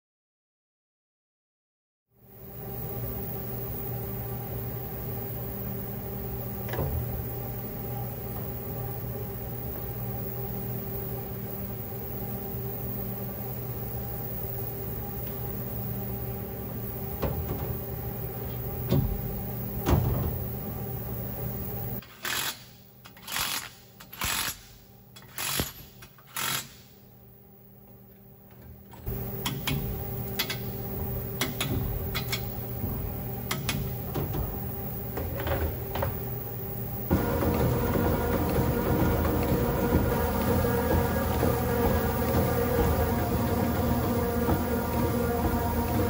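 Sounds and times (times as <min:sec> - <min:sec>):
hone buzzing in cylinder bore: 0:02.4 - 0:22.0, 0:29.0 - 0:46.0
short loud bursts of tool noise: 0:22.0 - 0:27.0
honing machine humming: 0:29.0 - 0:46.0.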